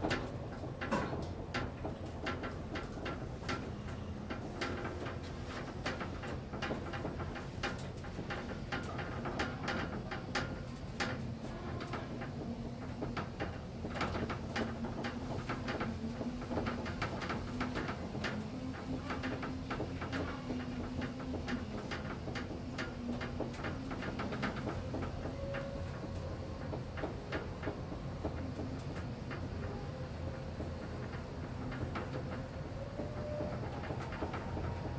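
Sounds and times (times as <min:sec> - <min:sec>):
elevator motor humming: 0:09.1 - 0:34.9.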